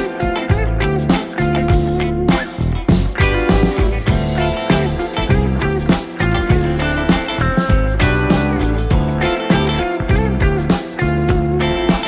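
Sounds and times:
guitar music over a beat: 0.0 - 12.0.

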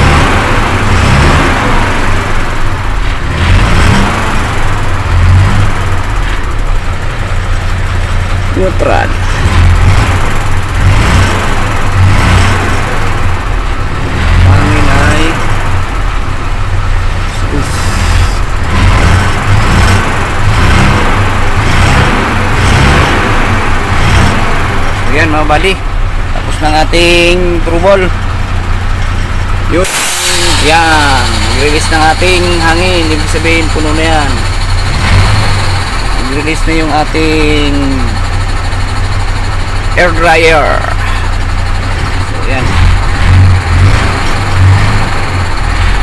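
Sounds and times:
diesel truck engine idling: 0.0 - 46.0
air compressor building pressure: 29.3 - 46.0.

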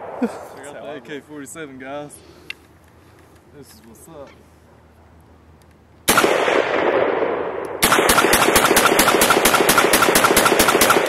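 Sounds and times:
automatic gunfire burst: 6.1 - 11.0
loud gunshot: 6.1 - 11.0.

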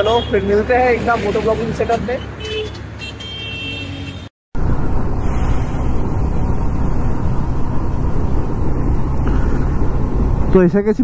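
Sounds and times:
wind and road rush: 0.0 - 11.0
motorcycle engine running: 4.6 - 10.5.

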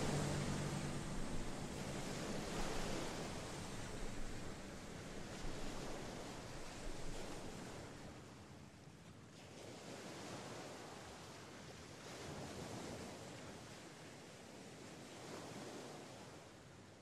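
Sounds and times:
sea waves washing onto sand: 0.0 - 8.3.

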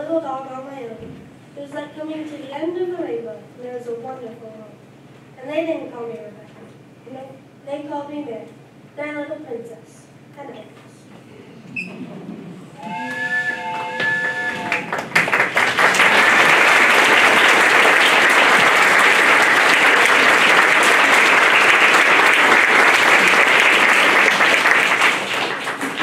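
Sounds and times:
short held music chords: 12.0 - 15.1
audience applauding: 12.9 - 26.0.

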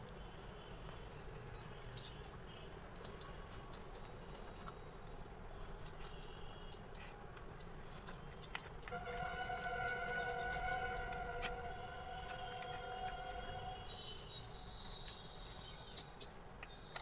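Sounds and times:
low steady hum: 0.0 - 17.0
mouth clicks and smacks chewing: 3.0 - 6.3.

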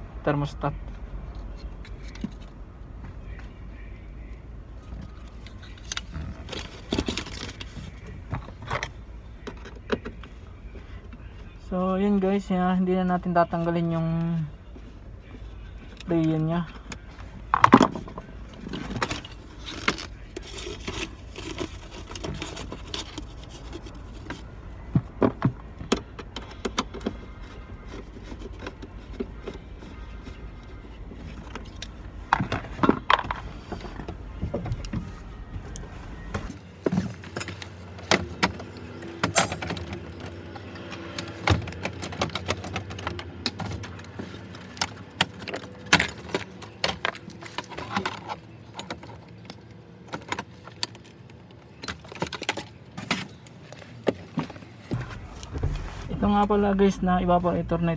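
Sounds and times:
low steady hum: 0.0 - 57.9
tools and plastic housing rattling: 5.0 - 10.4.

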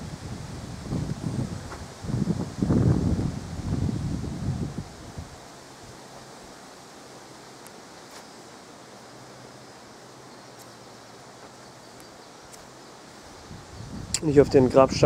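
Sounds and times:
even hiss: 0.0 - 15.0
faint ticks: 7.6 - 8.2, 11.9 - 12.7.

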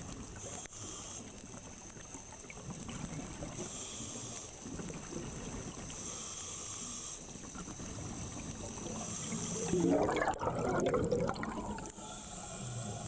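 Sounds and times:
regulator breathing hiss: 0.4 - 1.7, 3.5 - 4.8, 5.8 - 9.9, 11.7 - 13.0
low bubbling rumble: 9.7 - 11.9.

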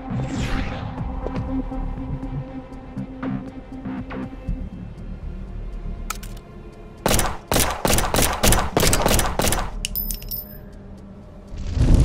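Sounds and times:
pistols firing rapid volley: 7.1 - 9.8
high ringing clicks: 9.8 - 10.7.

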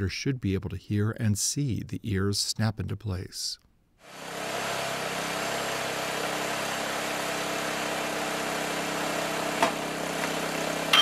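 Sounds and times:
baler engine running: 4.1 - 11.0.

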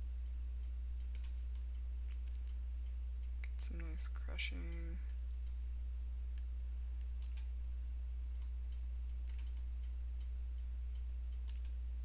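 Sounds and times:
low electrical hum: 0.0 - 12.0
mouse and keyboard clicks: 8.4 - 10.0.

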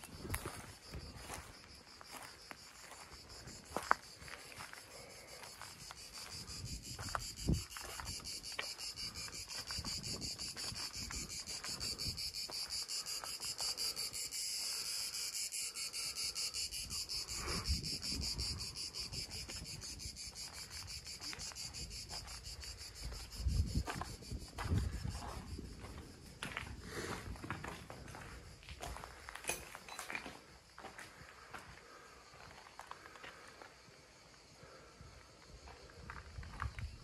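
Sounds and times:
footsteps on dry ground: 0.0 - 14.0, 18.3 - 33.8
cicadas buzzing: 0.0 - 29.4.

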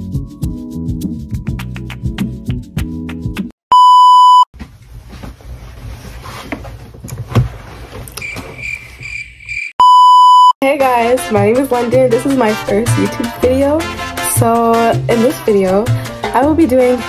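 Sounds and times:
music: 0.0 - 3.5, 10.6 - 17.0
censor bleep tone: 3.7 - 4.5, 9.8 - 10.6
rustling room noise: 4.6 - 9.1.

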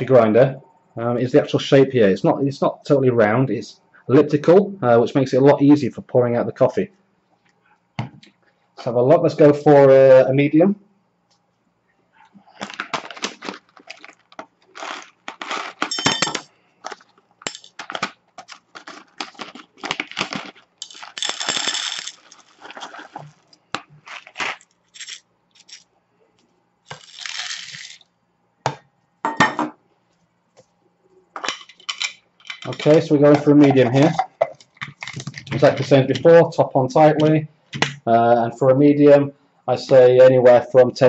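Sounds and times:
coffee beans clinking into metal cup: 14.8 - 16.5, 17.4 - 18.1, 20.2 - 23.2, 24.0 - 25.8.

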